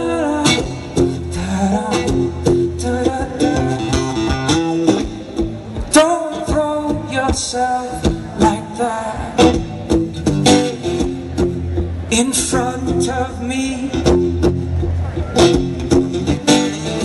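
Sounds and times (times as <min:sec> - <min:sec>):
man singing: 0:00.0 - 0:05.2, 0:05.8 - 0:10.0, 0:12.1 - 0:14.5
acoustic guitar strumming: 0:00.0 - 0:17.0.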